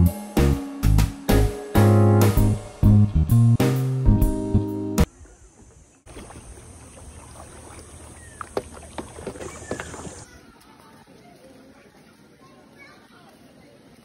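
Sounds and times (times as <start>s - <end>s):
guitar music: 0.0s - 5.1s
soft water noise: 5.0s - 14.0s.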